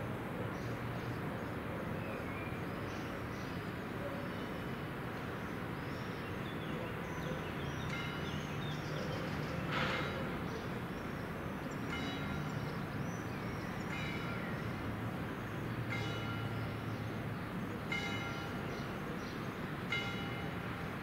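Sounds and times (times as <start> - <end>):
distant traffic hum: 0.0 - 21.0.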